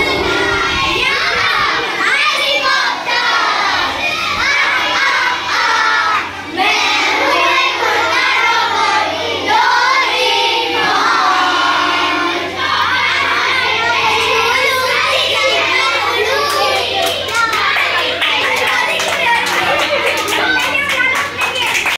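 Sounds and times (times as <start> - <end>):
children singing in chorus: 0.0 - 19.4
children shouting: 0.0 - 21.9.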